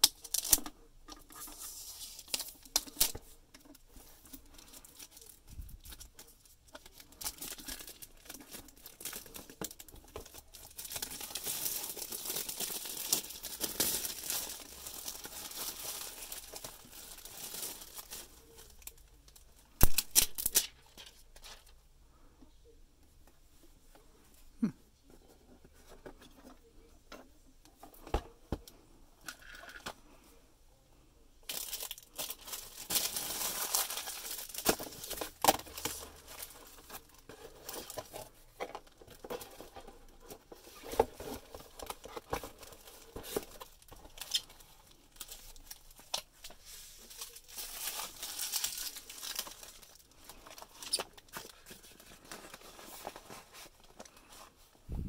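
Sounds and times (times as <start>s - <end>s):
plastic bags crinkling: 4.1s - 21.7s, 31.4s - 54.4s.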